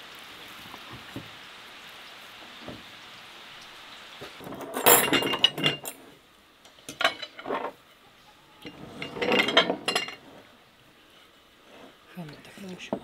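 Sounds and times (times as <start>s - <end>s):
forks clinking on plates and glasses: 4.5s - 6.0s, 6.9s - 7.7s, 8.6s - 10.2s.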